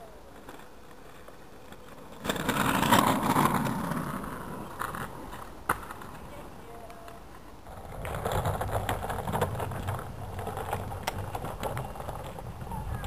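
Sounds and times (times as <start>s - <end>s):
bike rolling on pavement: 0.0s - 13.0s
wind buffeting microphone: 7.7s - 13.0s.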